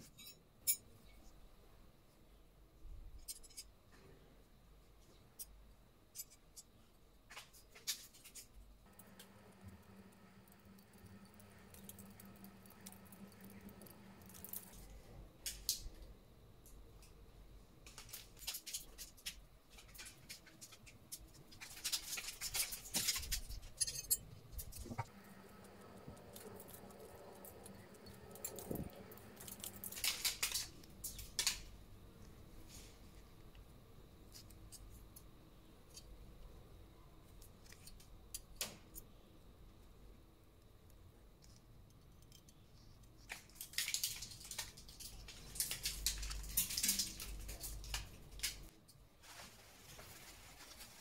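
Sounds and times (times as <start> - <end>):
rustling and scraping: 44.6 - 51.0.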